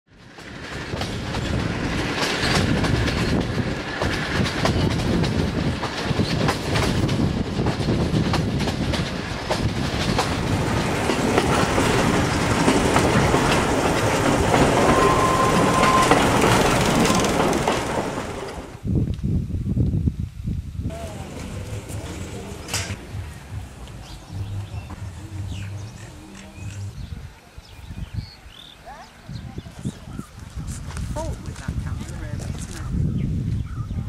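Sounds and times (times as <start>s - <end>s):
train carriages rumbling: 0.1s - 18.9s, 20.9s - 33.4s
wheels clickety-clack over rail joints: 0.1s - 18.9s, 20.9s - 26.9s.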